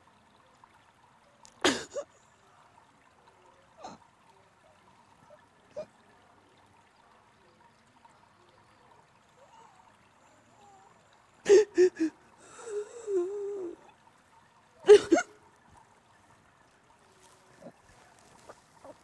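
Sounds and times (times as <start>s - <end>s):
woman sobbing: 1.6s - 2.0s, 11.4s - 13.9s, 14.9s - 15.3s
woman whimpering: 11.5s - 13.8s.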